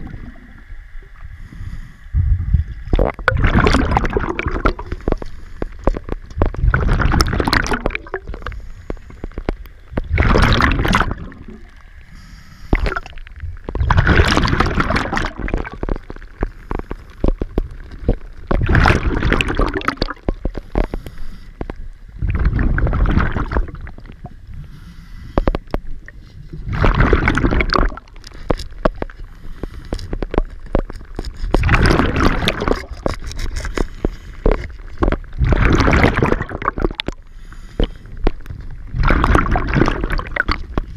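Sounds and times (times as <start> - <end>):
regulator bubbles gurgling: 0.0 - 40.9
diver breathing: 1.3 - 2.2, 12.0 - 12.8, 20.7 - 21.7, 24.6 - 25.7, 29.2 - 30.2, 37.2 - 38.2.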